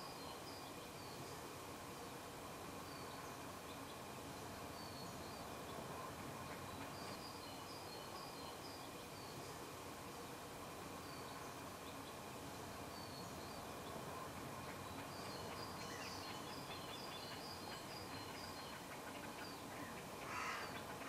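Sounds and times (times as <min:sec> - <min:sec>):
steady hiss: 0:00.0 - 0:21.0
distant birds calling: 0:13.0 - 0:21.0.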